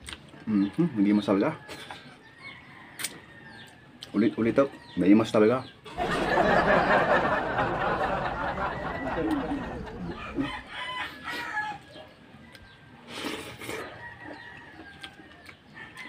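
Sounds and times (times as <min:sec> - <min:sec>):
rooster crowing: 0:06.0 - 0:11.9.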